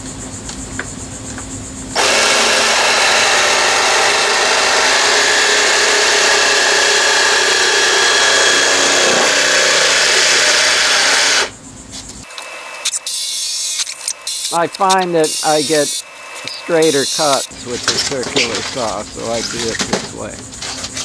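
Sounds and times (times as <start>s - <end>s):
power saw cutting plastic: 1.9s - 11.5s, 12.2s - 20.0s.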